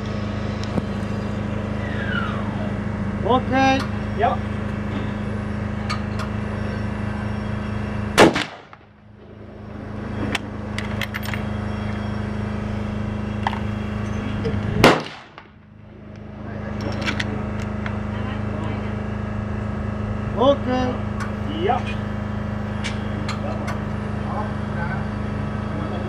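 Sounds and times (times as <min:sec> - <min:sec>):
rifle shots: 0:08.2 - 0:09.4, 0:14.8 - 0:15.5.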